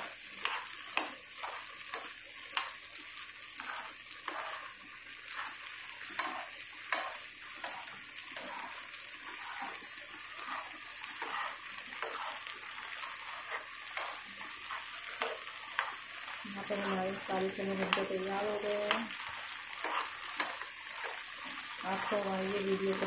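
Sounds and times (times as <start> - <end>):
spatula scraping against pan: 0.0 - 2.7, 3.5 - 23.0
chickpeas sizzling in frying pan: 0.0 - 23.0.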